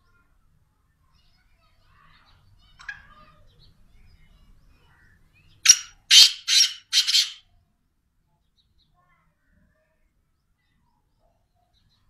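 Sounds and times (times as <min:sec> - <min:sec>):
bird calling with harsh notes: 0:04.9 - 0:07.4.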